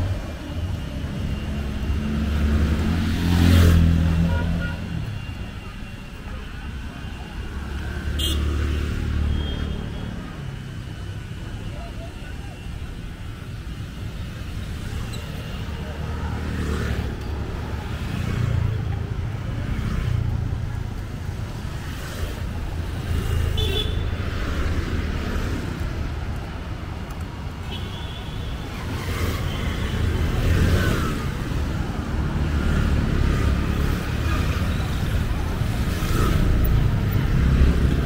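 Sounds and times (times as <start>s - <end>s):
scooters and motorcycles passing: 0.0s - 38.0s.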